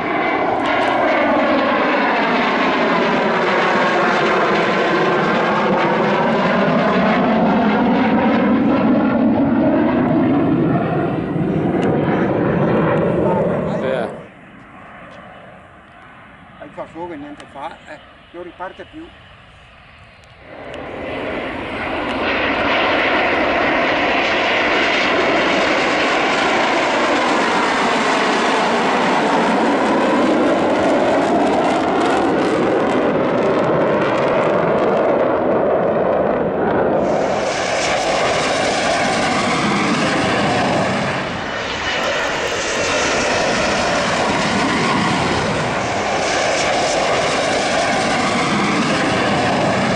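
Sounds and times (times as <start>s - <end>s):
jet engines flying past: 0.0s - 49.9s.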